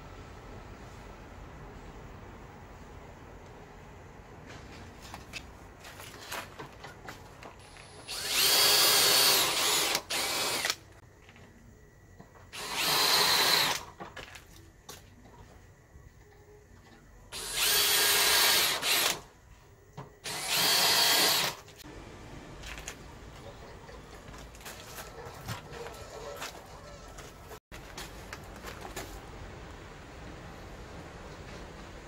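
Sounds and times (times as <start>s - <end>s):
cordless drill whining: 8.0s - 10.8s, 12.6s - 13.8s, 17.4s - 19.2s, 20.2s - 21.6s.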